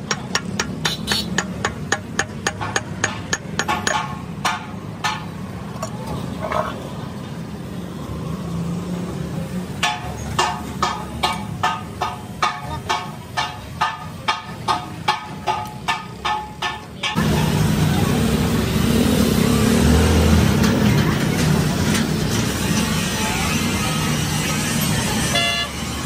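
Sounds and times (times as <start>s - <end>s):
hammer blows on metal: 0.0s - 5.3s.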